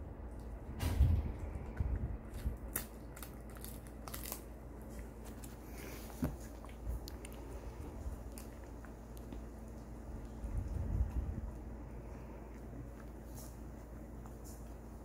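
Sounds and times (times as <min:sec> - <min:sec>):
dog crunching hard chew treat: 0:01.6 - 0:09.4.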